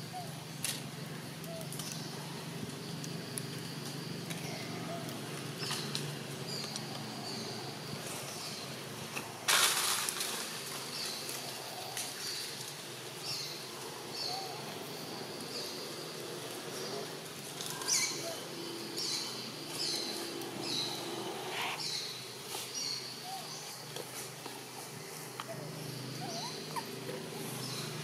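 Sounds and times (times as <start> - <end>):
bird chirping: 13.3 - 24.0, 25.4 - 28.0.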